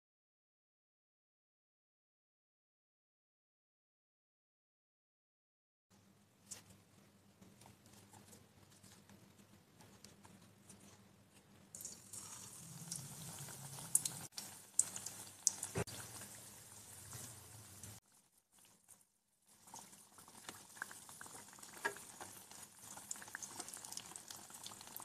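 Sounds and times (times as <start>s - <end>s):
potato slices deep-frying in oil: 11.7s - 25.0s
oil popping: 11.8s - 18.0s, 19.6s - 25.0s.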